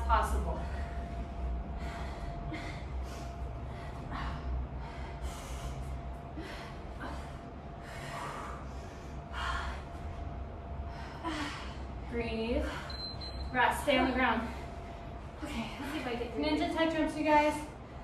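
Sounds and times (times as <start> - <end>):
woman breathing hard: 0.4 - 13.2.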